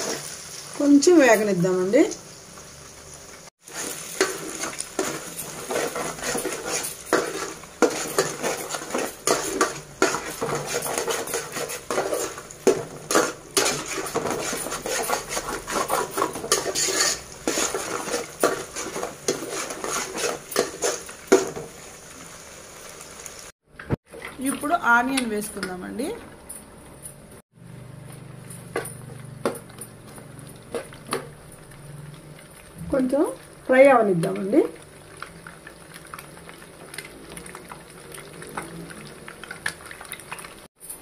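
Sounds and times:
eggs sizzling in oil: 0:00.0 - 0:26.1, 0:28.1 - 0:40.7
metal spoon scraping a pan: 0:03.7 - 0:21.6.

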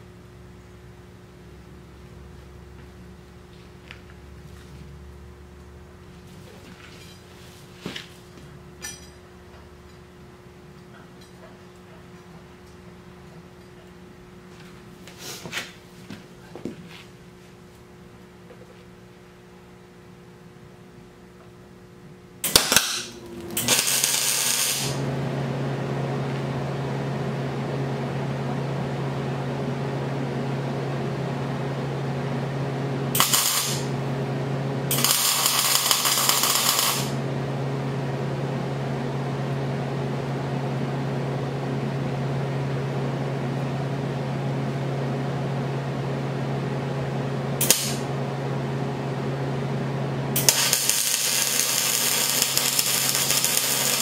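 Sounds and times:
steady low hum: 0:00.0 - 0:54.0
arc welding bursts: 0:22.4 - 0:25.0, 0:33.1 - 0:34.0, 0:34.9 - 0:37.2, 0:47.6 - 0:48.0, 0:50.4 - 0:54.0.

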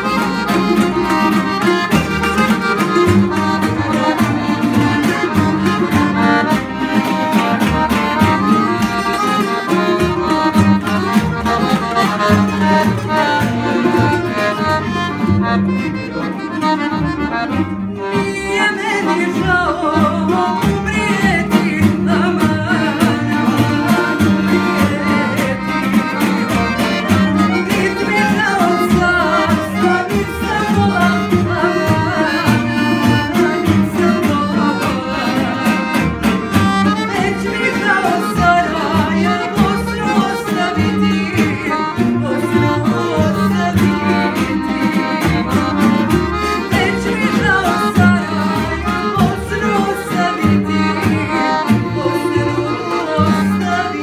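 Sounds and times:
acoustic guitar: 0:00.0 - 0:54.0
double bass: 0:00.0 - 0:54.0
plucked tamburica: 0:00.0 - 0:54.0
woman singing: 0:18.2 - 0:26.0, 0:27.2 - 0:36.0, 0:36.9 - 0:44.6, 0:46.6 - 0:54.0.

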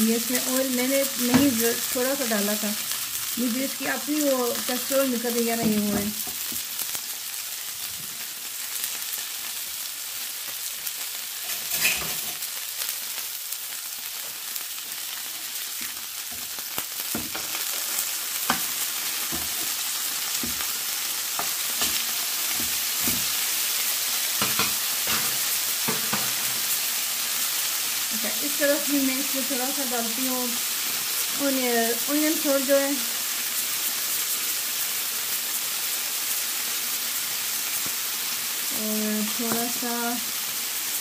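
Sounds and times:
burger patties sizzling in a pan: 0:00.0 - 0:41.0
metal spatula scraping a pan: 0:11.4 - 0:12.4.

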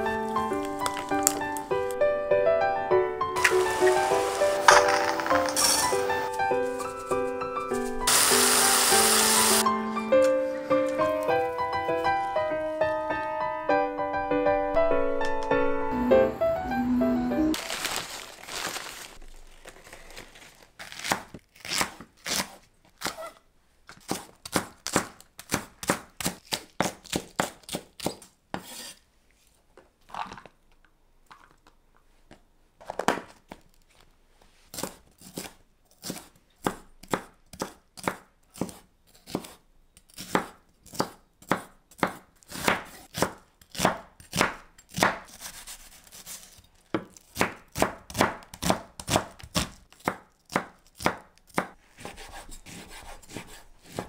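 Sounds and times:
newspaper rustling: 0:00.1 - 0:01.9, 0:03.4 - 0:09.6, 0:17.6 - 0:21.5
knife chopping on wooden board: 0:40.2 - 0:45.5, 0:46.9 - 0:54.0.

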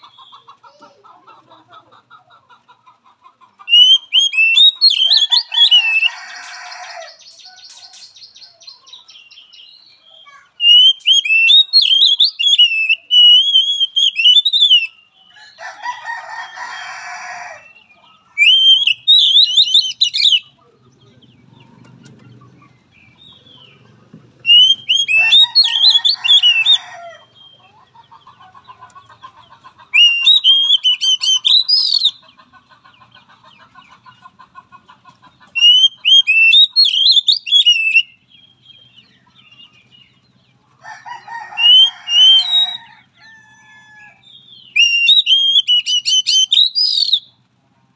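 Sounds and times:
bird harsh raspy notes: 0:03.6 - 0:15.0, 0:18.4 - 0:20.6, 0:24.4 - 0:34.3, 0:35.3 - 0:40.0, 0:41.2 - 0:43.0, 0:44.5 - 0:47.3
bird warbling whistled phrases: 0:03.7 - 0:06.1, 0:10.6 - 0:15.0, 0:18.4 - 0:20.5, 0:24.5 - 0:26.8, 0:29.9 - 0:32.2, 0:35.6 - 0:38.2, 0:41.6 - 0:42.8, 0:44.7 - 0:47.3.

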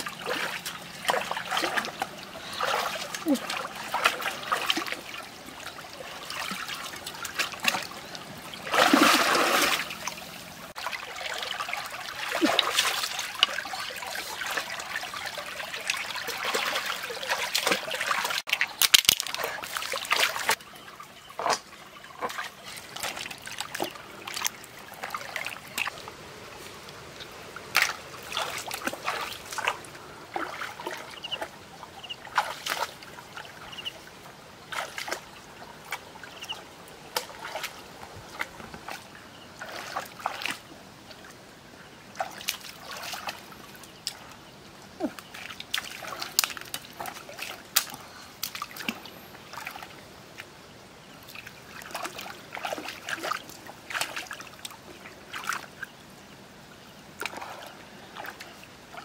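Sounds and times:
water trickling among stones: 0:00.0 - 0:40.7, 0:42.1 - 0:56.0
hands splashing in water: 0:08.6 - 0:10.0.

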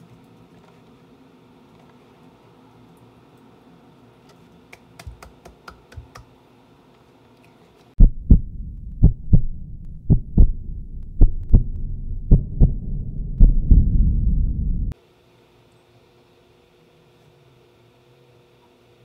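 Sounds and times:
heartbeat sound effect: 0:08.0 - 0:15.0
low rumble: 0:08.0 - 0:15.0.

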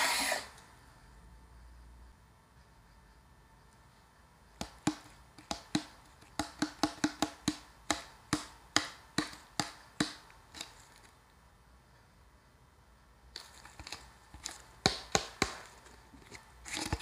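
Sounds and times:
fingers tapping paper cup: 0:04.6 - 0:10.8, 0:13.4 - 0:15.9.

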